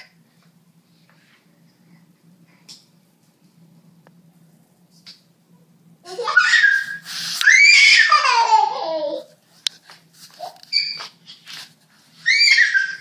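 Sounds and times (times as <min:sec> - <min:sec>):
toddler squealing and shrieking: 0:06.2 - 0:08.7, 0:10.4 - 0:11.1, 0:12.2 - 0:13.0.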